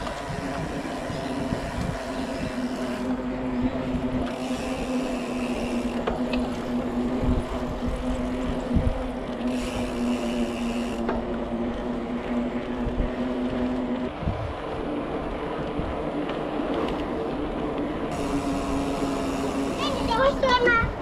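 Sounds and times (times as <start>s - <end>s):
wind rushing over microphone: 0.0s - 5.2s, 5.8s - 10.0s, 11.6s - 18.4s
bike tyre noise: 0.0s - 21.0s
steady hum: 0.0s - 21.0s.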